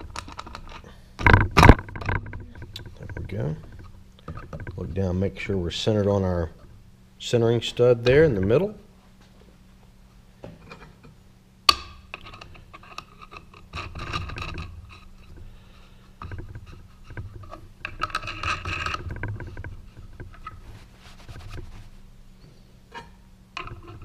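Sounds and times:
metal nuts scraping and rattling: 0.0s - 6.7s, 10.6s - 21.8s, 22.9s - 24.0s.

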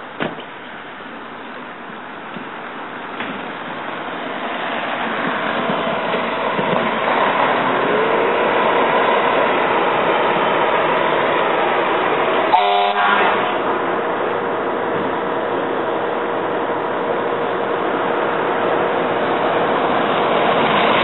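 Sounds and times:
fire truck engines running: 0.0s - 21.0s
air horn blast: 12.5s - 13.7s.

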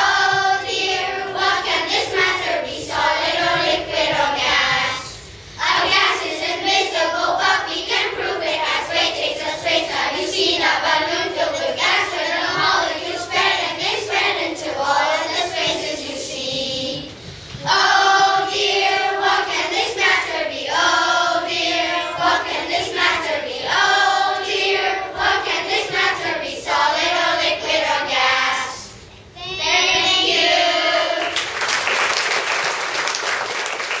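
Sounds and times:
children singing in unison: 0.0s - 31.4s
applause: 31.2s - 34.0s.

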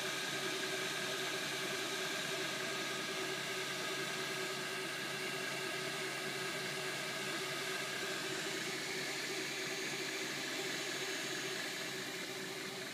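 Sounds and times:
three-d printer whirring: 0.1s - 12.9s
cooling fans humming: 4.8s - 12.9s.

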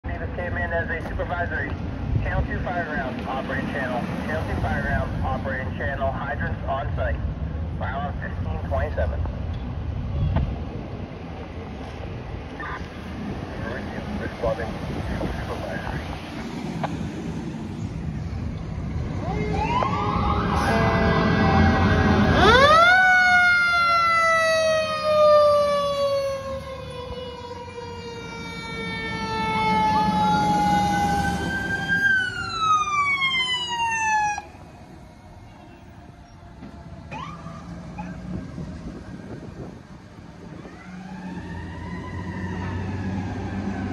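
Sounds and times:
diesel truck engine rumble: 0.0s - 43.9s
mechanical siren wailing: 19.1s - 39.8s, 40.5s - 43.9s.

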